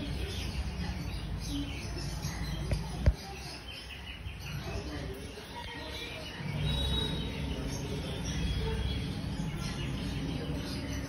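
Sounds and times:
steady background noise: 0.0 - 11.0
faint high chirps: 5.6 - 10.9.

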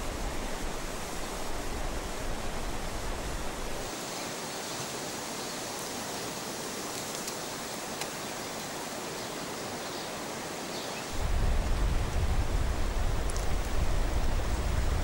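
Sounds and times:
steady outdoor hiss: 0.0 - 15.0.

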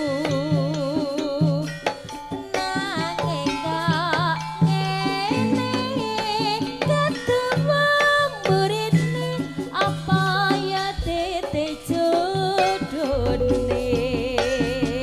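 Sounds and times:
woman singing with vibrato: 0.0 - 1.9, 2.5 - 15.0
hand drum strokes: 0.0 - 15.0
melodic accompaniment: 13.1 - 15.0.

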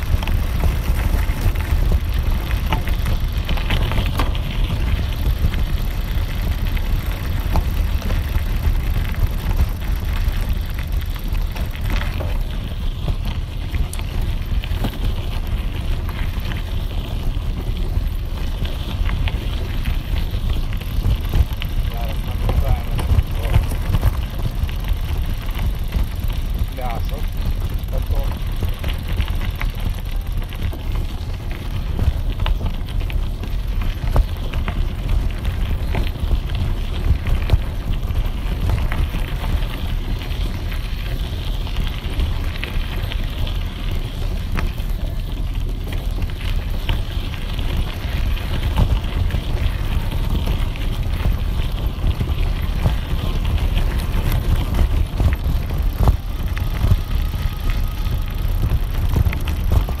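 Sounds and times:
clicks and rattles from stones: 0.0 - 60.0
tyres rolling on gravel: 0.0 - 60.0
wind rumbling on microphone: 0.0 - 60.0.

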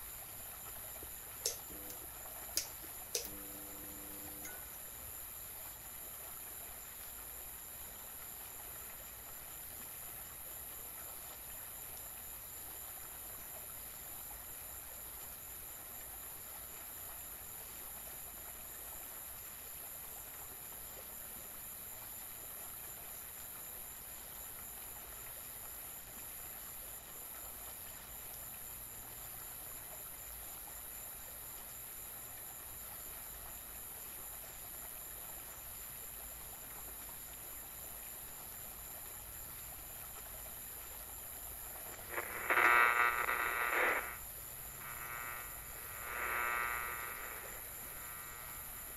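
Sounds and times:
faint low hum: 1.0 - 5.2, 41.7 - 48.9.

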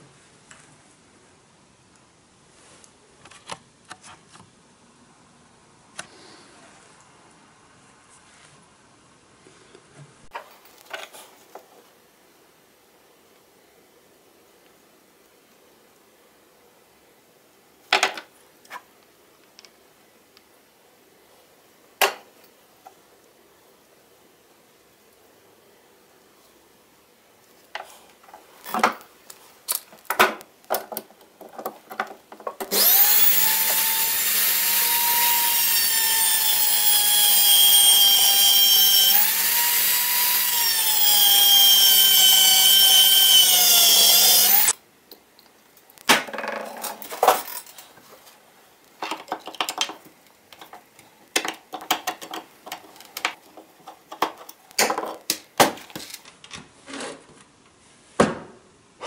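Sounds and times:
rotary tool grinding whine: 32.7 - 44.8.

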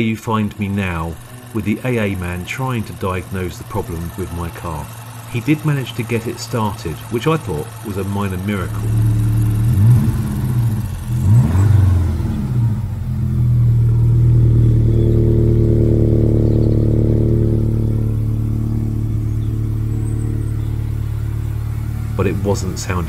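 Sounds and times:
car engine misfiring: 0.0 - 23.0.

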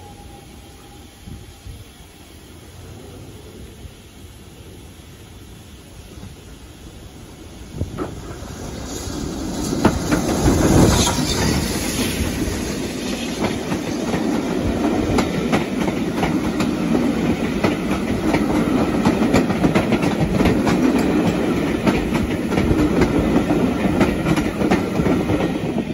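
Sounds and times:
steam locomotive passing: 0.0 - 25.9
wheels clicking over rail joints: 7.8 - 25.9.

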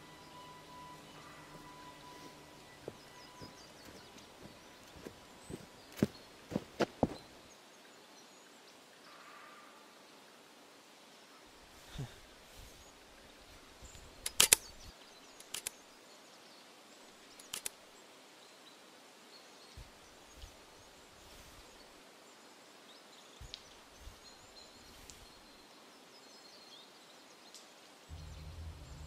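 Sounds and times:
faint bird chirps: 0.0 - 10.2
sharp cracks: 14.2 - 14.7, 15.4 - 15.7, 17.4 - 17.8
soft low thumps: 28.1 - 29.0.

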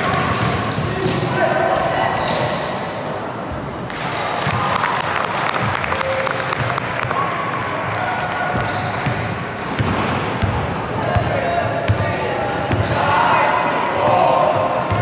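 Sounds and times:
voices in large hall: 0.0 - 15.0
basketball bouncing on court: 6.5 - 7.3, 7.9 - 12.0.

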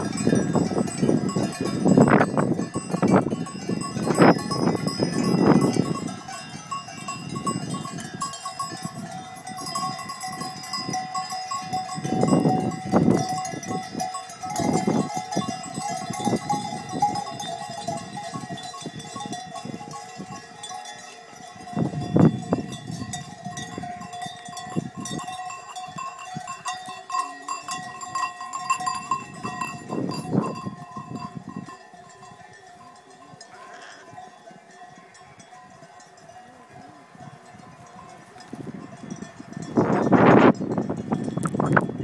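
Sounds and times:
sheep bells clanking: 0.0 - 42.0.

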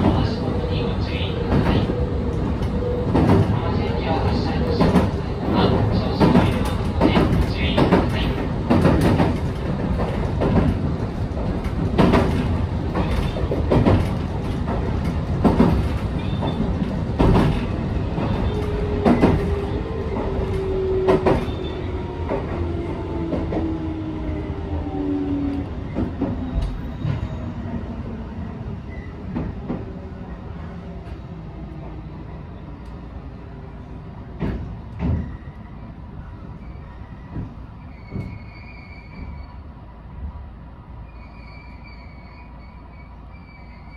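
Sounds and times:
train drive whine: 0.0 - 43.9
wheels clacking over rail joints: 4.7 - 22.6.

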